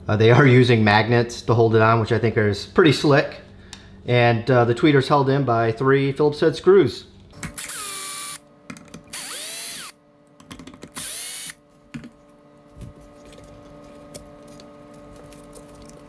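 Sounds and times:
power drill whirring: 7.6 - 8.4, 9.1 - 10.0, 11.0 - 11.6.

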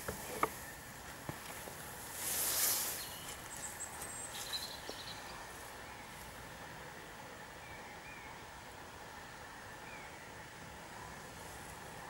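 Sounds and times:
outdoor background noise: 0.0 - 12.0
brief rustling hiss: 2.1 - 3.5
small birds calling: 2.5 - 6.4, 7.5 - 8.6.

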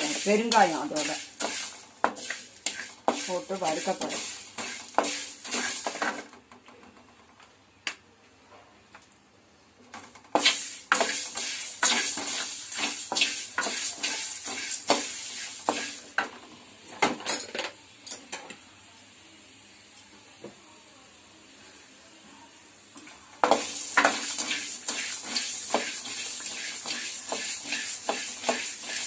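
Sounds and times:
spoon scraping and clinking in pan: 0.0 - 6.1, 10.4 - 16.0, 23.4 - 29.0.

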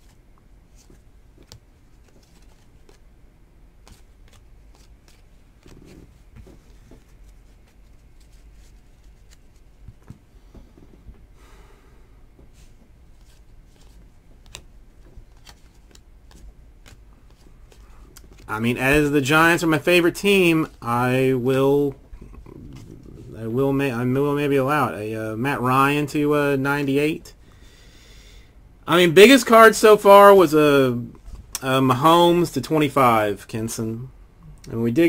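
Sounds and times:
trading cards rustling: 0.0 - 3.0, 3.8 - 10.2, 12.6 - 21.4.

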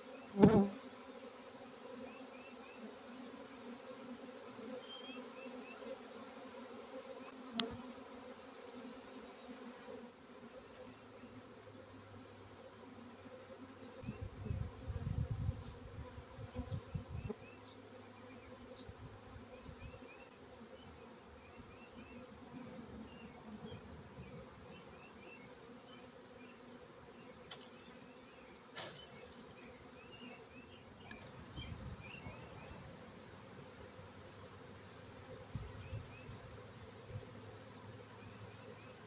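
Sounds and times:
honeybee swarm buzzing: 0.0 - 39.0.

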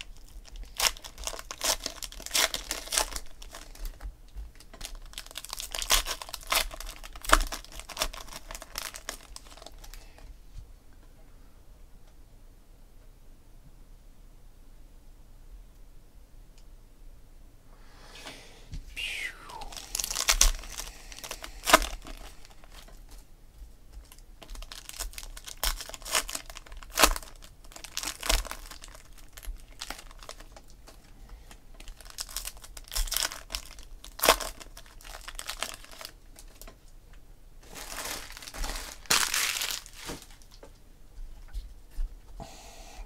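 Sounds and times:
foil wrappers tearing and crinkling: 0.0 - 10.0, 19.7 - 23.1, 24.0 - 30.7, 31.8 - 36.7, 37.6 - 40.6.

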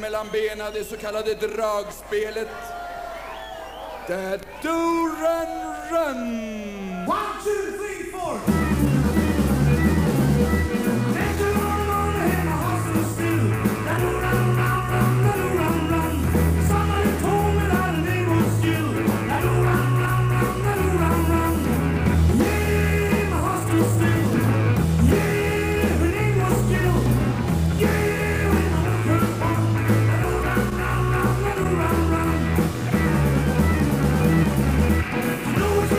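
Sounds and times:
accordions playing upbeat tune: 8.4 - 35.9.

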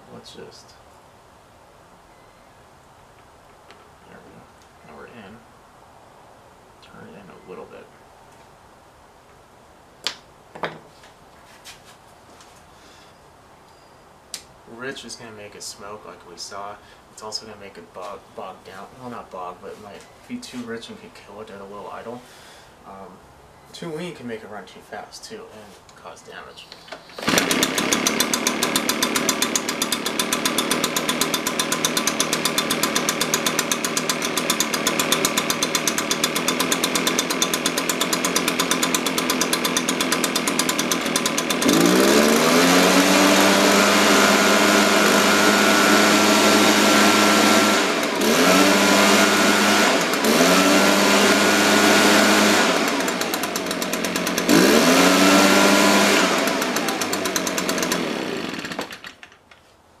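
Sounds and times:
leaf blower engine idling and revving: 27.0 - 59.2.

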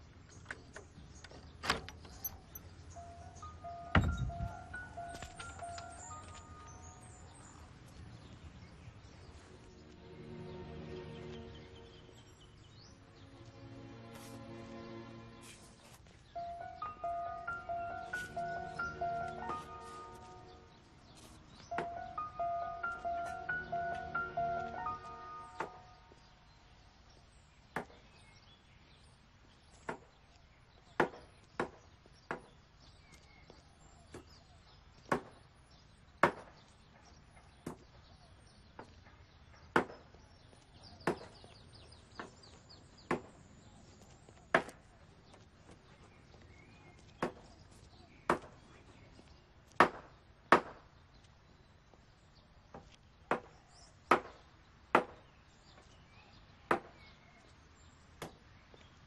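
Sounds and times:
blade chopping wood: 49.8 - 50.8.

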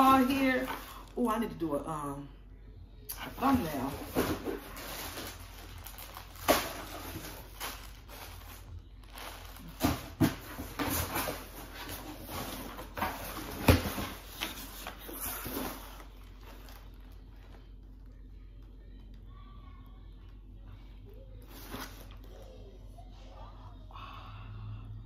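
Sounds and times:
cardboard scraping and rustling: 3.9 - 17.2.

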